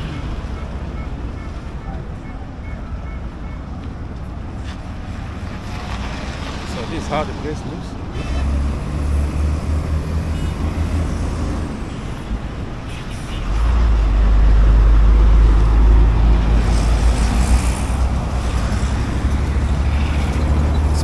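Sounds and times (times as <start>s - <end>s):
heavy vehicle low rumble: 0.0s - 21.0s
vehicles passing steadily: 0.0s - 21.0s.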